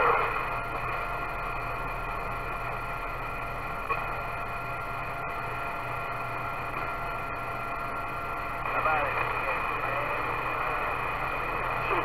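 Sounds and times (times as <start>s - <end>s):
faint steady tones: 0.0s - 12.0s
low hum: 0.0s - 12.0s
radio static hiss: 0.0s - 12.0s.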